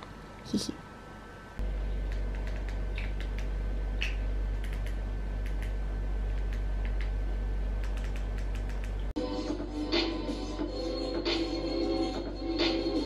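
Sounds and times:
steady low hum: 0.0s - 13.0s
light irregular clicks: 2.0s - 7.1s, 7.8s - 9.0s
music: 9.2s - 13.0s.

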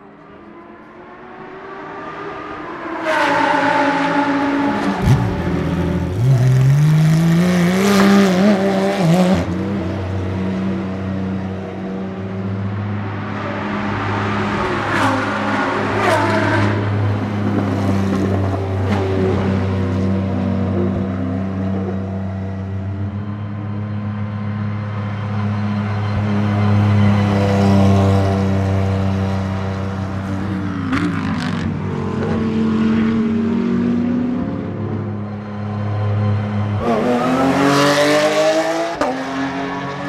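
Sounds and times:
race car engine revving: 1.5s - 11.6s.

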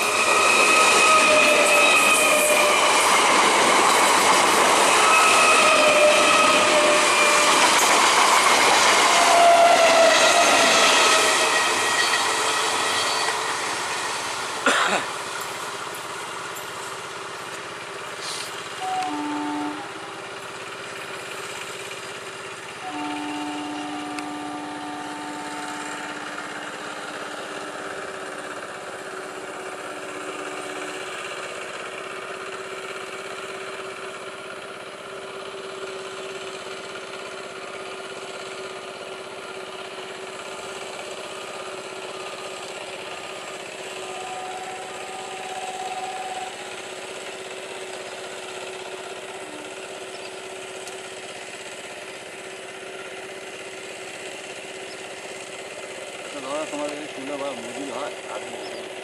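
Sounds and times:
electric train running: 0.0s - 59.0s
held tones: 43.8s - 48.3s.

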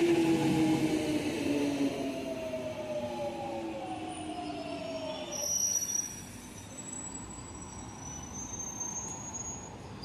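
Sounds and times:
train rumble: 0.0s - 5.2s.

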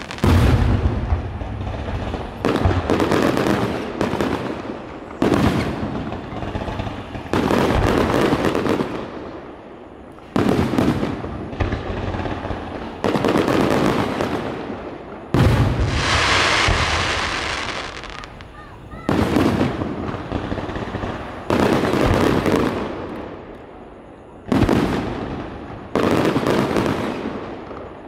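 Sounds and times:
firework crackle: 0.0s - 28.0s
firework shells booming: 10.2s - 23.2s
hissing crackle: 15.5s - 19.0s.

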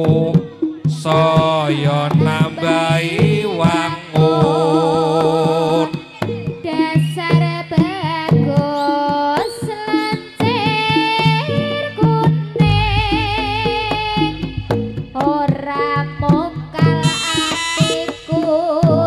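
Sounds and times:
hand drumming: 0.0s - 19.0s
low gong-like drone: 12.6s - 15.8s
vibrato lead melody: 12.6s - 19.0s.

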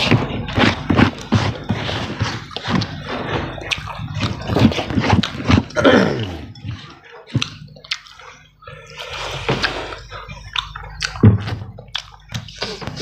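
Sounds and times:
wet eating squelches: 0.0s - 13.0s
lip smacks: 6.4s - 13.0s
chewing clicks: 6.5s - 12.8s.

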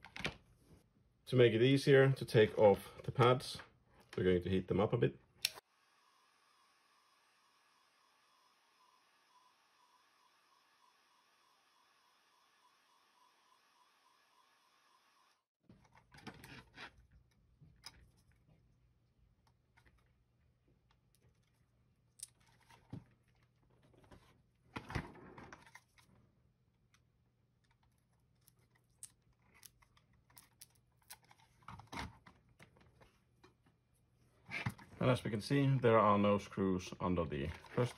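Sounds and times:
computer mouse handling noises: 22.2s - 26.2s, 26.8s - 33.6s.

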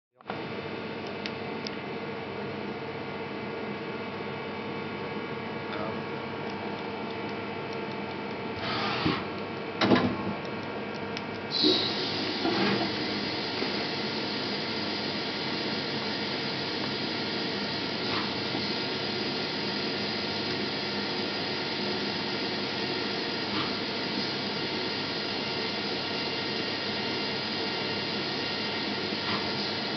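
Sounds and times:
lathe running hum: 11.5s - 29.9s.

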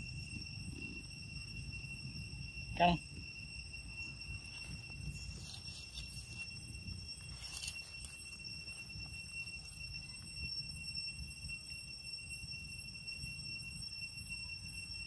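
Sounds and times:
insects high-pitched drone: 0.0s - 15.0s
faint rustling: 4.4s - 9.8s.

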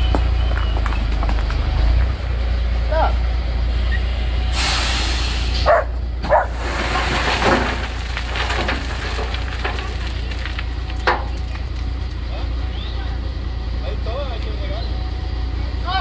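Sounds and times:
truck engine rumble: 0.0s - 16.0s
stones striking: 6.3s - 12.2s.

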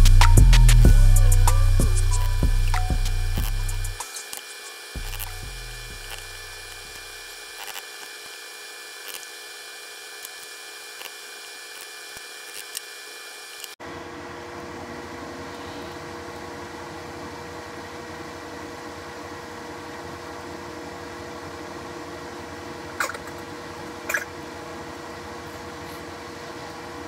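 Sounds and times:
bass line: 0.0s - 4.0s, 5.0s - 7.0s
steady background hum: 0.0s - 27.0s.

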